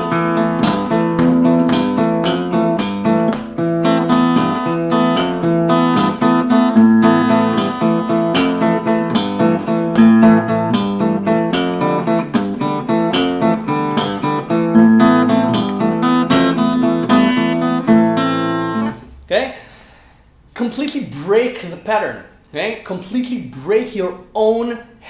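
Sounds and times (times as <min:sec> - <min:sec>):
fingerpicked acoustic guitar: 0:00.0 - 0:19.1.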